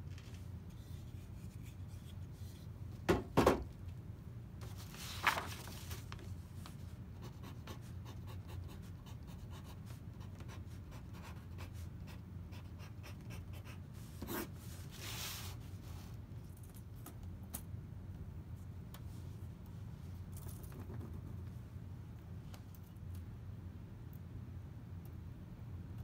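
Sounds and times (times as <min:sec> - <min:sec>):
pencil scratching on paper: 0:07.2 - 0:14.6.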